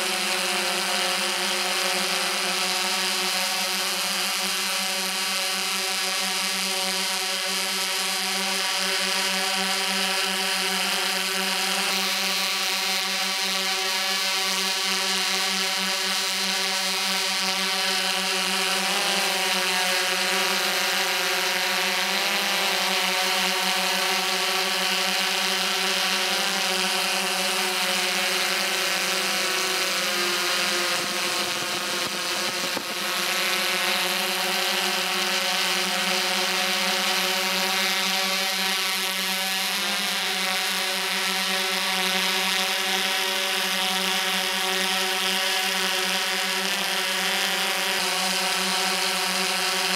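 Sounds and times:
drone motors whining: 25.0s - 37.2s.

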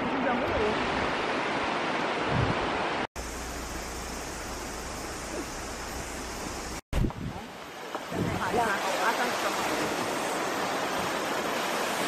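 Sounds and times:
waterfall rushing: 7.4s - 12.0s.

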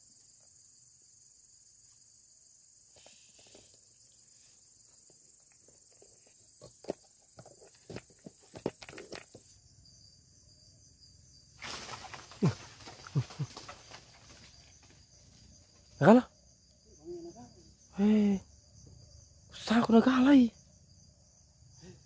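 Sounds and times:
crickets chirring: 0.0s - 22.0s
rustling leaves and swishes: 11.6s - 15.7s.

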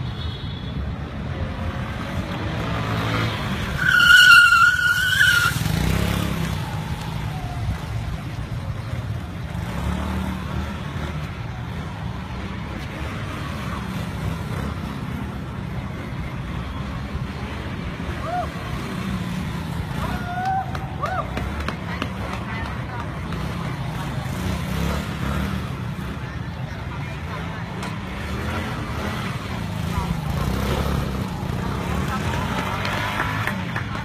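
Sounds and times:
motorbike engines rumbling: 0.0s - 34.0s
tyre screech: 3.6s - 6.2s.

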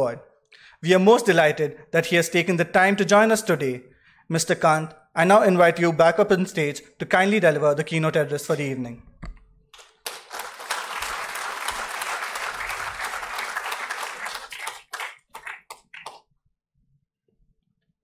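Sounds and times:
audience applause: 9.8s - 16.2s.

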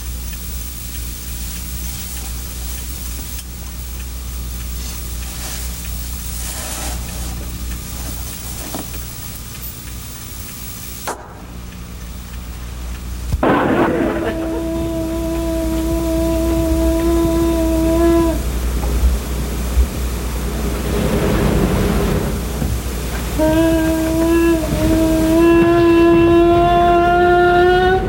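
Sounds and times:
steady buzzing tone: 0.0s - 28.0s
steady hiss and low hum: 0.0s - 28.0s
short loud noisy burst: 10.8s - 28.0s.

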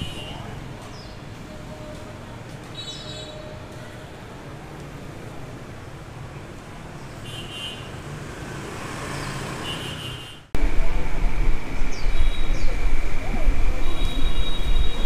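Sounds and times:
cars and motorbikes passing: 4.2s - 15.0s
loud steady low rumble: 10.6s - 15.0s.

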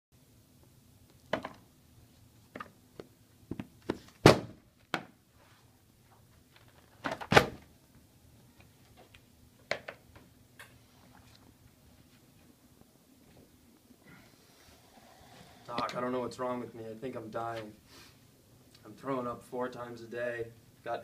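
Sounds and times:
books thudding on table: 3.5s - 5.1s.

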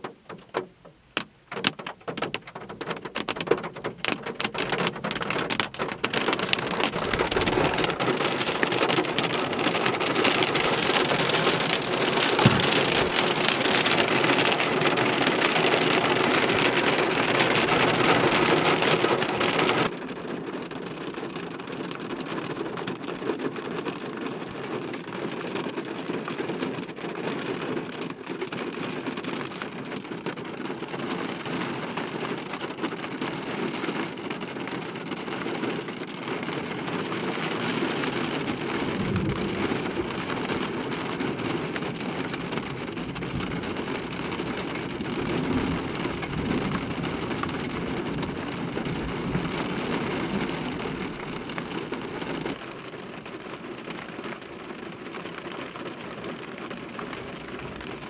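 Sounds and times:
rain falling on a car: 0.0s - 58.0s
low rumble of thunder: 6.4s - 15.0s, 38.7s - 41.4s, 42.8s - 52.5s.

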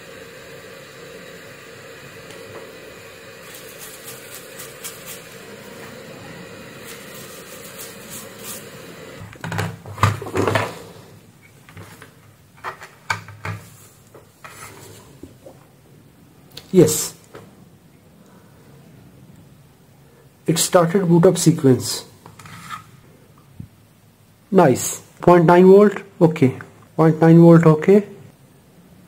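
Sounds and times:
steady hiss: 0.0s - 9.4s, 10.5s - 29.0s.

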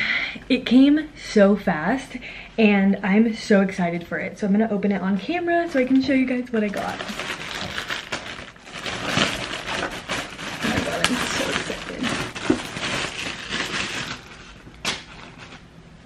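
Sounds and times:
plastic bag crinkling and tearing: 5.5s - 15.7s.

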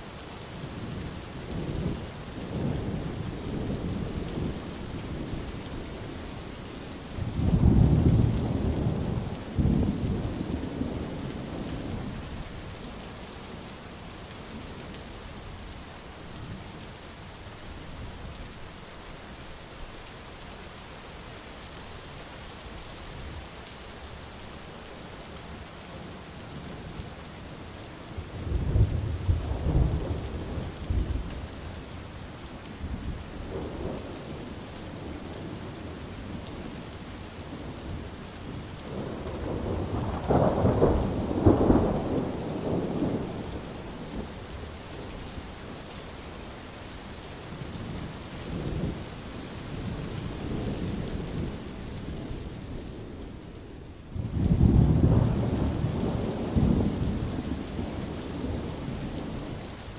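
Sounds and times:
steady rain: 0.0s - 59.9s
rolling thunder: 38.9s - 44.2s, 54.1s - 59.4s.

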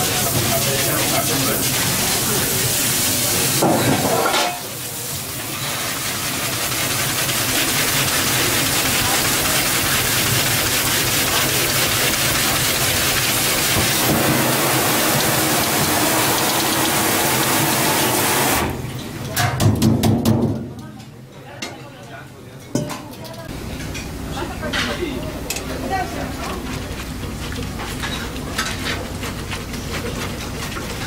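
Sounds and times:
tap water splashing in sink: 6.4s - 17.2s.

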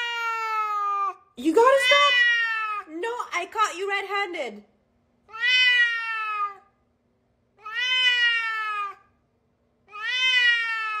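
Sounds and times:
cat meowing: 0.0s - 2.9s, 5.3s - 6.8s, 7.6s - 9.2s, 9.8s - 11.0s.

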